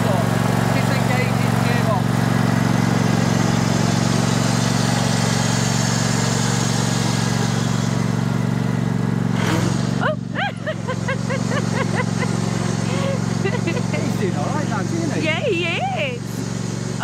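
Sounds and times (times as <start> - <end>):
ride-on lawn mower engine running: 0.0 - 17.0.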